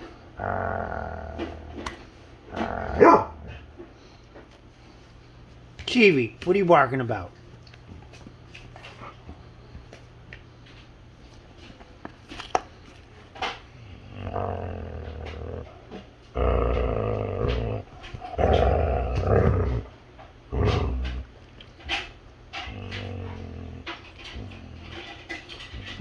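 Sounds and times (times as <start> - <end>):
dog growling: 0.0 - 3.7, 13.4 - 21.4, 22.5 - 26.0.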